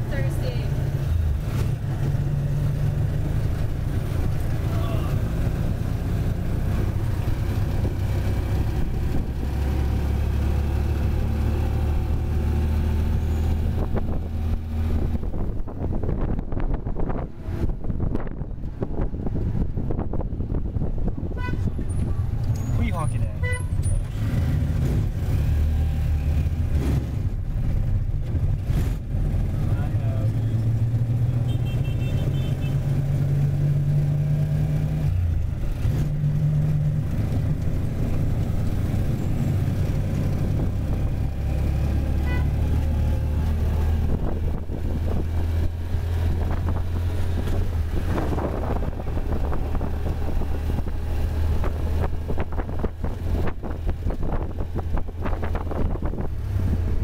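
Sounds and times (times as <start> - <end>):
rickshaw engine running: 0.0 - 31.3.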